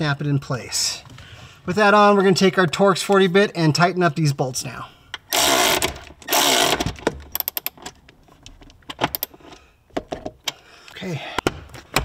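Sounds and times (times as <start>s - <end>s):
cordless ratchet running: 5.3s - 7.7s
light metallic clicks and rattles: 6.8s - 10.6s.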